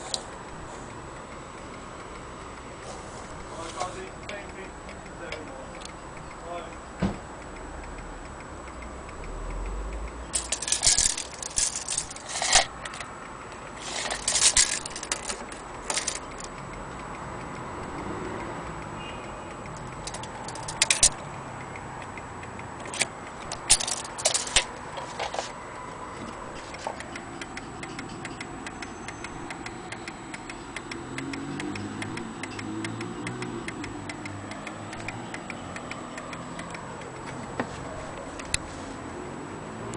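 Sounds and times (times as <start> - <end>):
wall clock ticking: 0.0 - 39.9
handling clatter: 10.4 - 13.1, 13.8 - 16.5, 20.1 - 21.2, 22.9 - 25.5.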